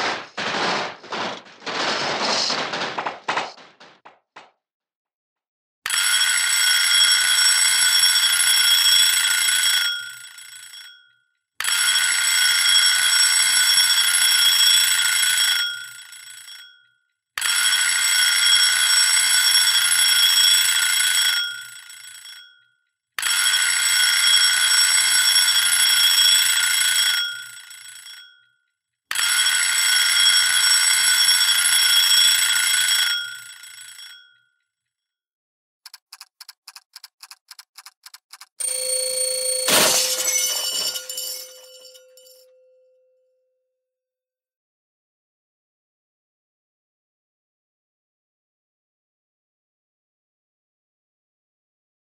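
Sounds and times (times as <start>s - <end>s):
alarm clock bell ringing: 5.9s - 34.6s, 38.6s - 42.8s.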